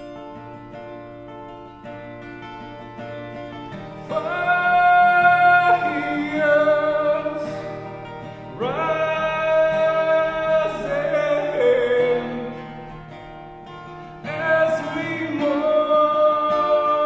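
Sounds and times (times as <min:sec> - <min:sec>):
acoustic guitar strumming: 0:00.0 - 0:17.0
man singing: 0:04.0 - 0:13.1, 0:14.2 - 0:17.0.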